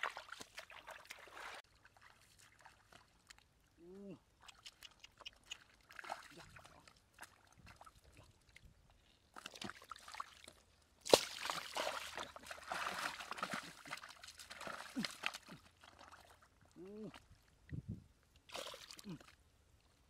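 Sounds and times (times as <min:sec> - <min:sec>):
water sloshing and splashing: 0:00.0 - 0:03.6, 0:05.5 - 0:17.5, 0:18.4 - 0:19.4
small drips and clicks: 0:02.4 - 0:03.5, 0:04.4 - 0:11.2
sharp water slap: 0:11.0 - 0:13.7.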